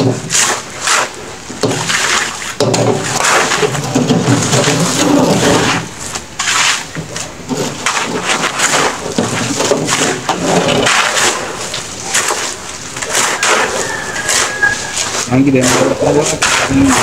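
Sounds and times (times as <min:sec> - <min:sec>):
shovels scraping into gravel: 0:00.0 - 0:17.0.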